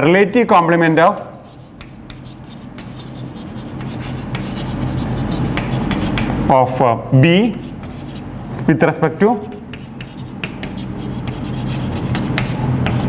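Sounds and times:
chalk scraping on blackboard: 0.3s - 6.3s, 7.5s - 8.2s, 9.3s - 13.0s.

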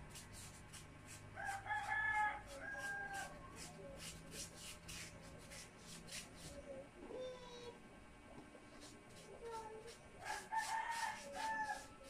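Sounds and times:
rooster crowing: 1.4s - 3.4s, 10.2s - 12.0s
paintbrush scratchy strokes: 2.4s - 6.6s, 8.7s - 12.0s.

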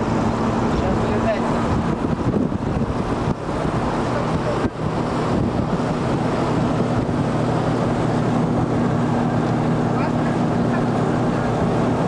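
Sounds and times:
bus engine hum: 0.0s - 12.0s
road noise: 0.0s - 12.0s
wind buffeting microphone: 0.0s - 12.0s.

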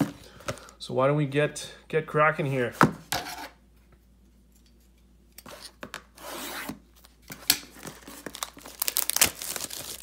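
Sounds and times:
hands tearing plastic wrapping: 7.4s - 10.0s
plastic crinkling: 7.7s - 10.0s.

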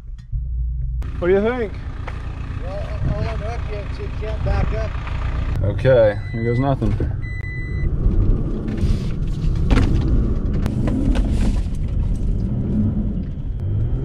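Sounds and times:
truck engine running hard: 1.0s - 5.7s
short electronic beep: 6.2s - 7.9s.

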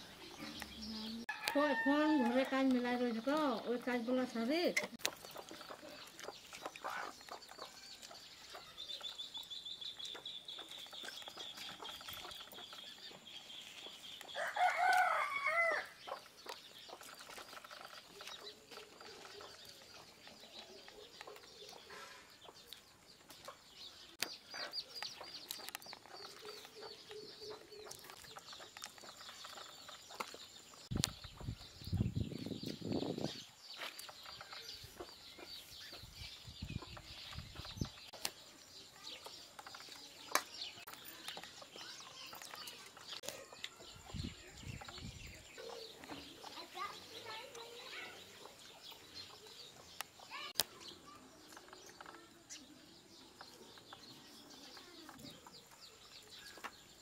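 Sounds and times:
rooster crowing: 1.3s - 2.4s, 14.4s - 15.9s.

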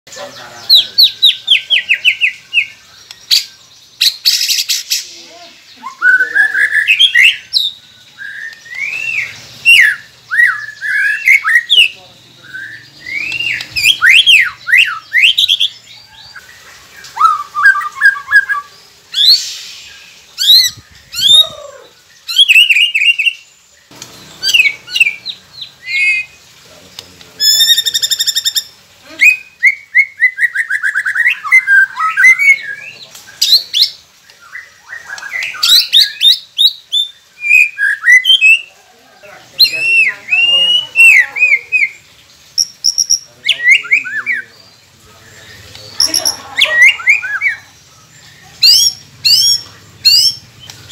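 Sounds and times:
bird singing whistles and trills: 5.8s - 23.5s, 24.2s - 26.4s, 27.4s - 38.7s, 42.6s - 44.7s, 45.3s - 50.9s
harsh bird chattering: 24.0s - 34.0s, 45.4s - 50.9s.

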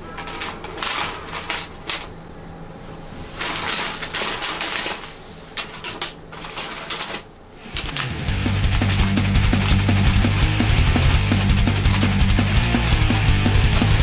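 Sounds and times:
metal wire pieces clinking: 0.0s - 2.2s, 3.4s - 10.4s
rock music: 7.8s - 14.0s.

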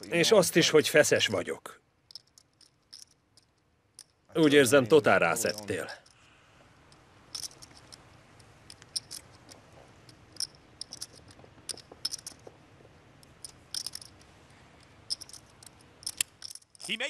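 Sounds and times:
faint room hum: 0.0s - 17.0s
poker chips clicking: 2.1s - 4.2s, 5.4s - 6.2s, 6.8s - 12.5s, 13.2s - 17.0s.

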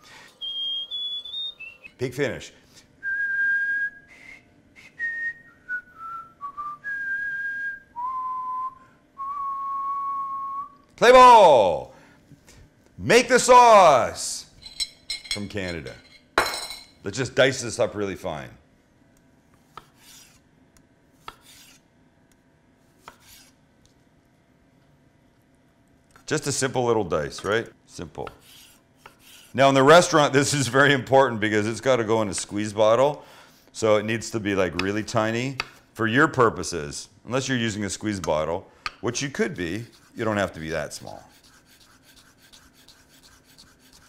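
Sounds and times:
man whistling a tune: 0.3s - 2.0s, 3.0s - 10.8s
knife slicing on cutting board: 21.2s - 21.8s, 23.0s - 23.6s.

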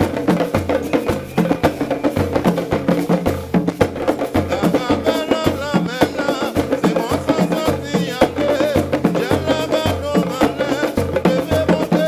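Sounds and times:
hand drums: 0.0s - 12.0s
person singing: 4.4s - 12.0s.

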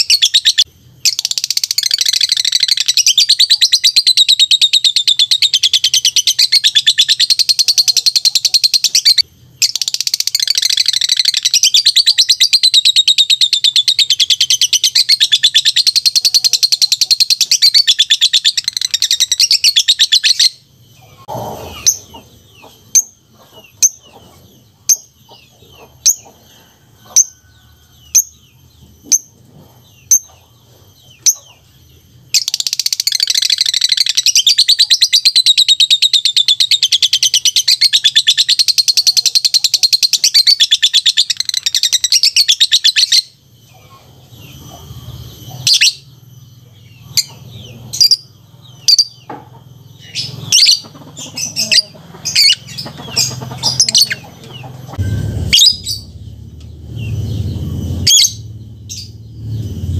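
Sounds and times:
bird chirping: 0.0s - 59.9s.

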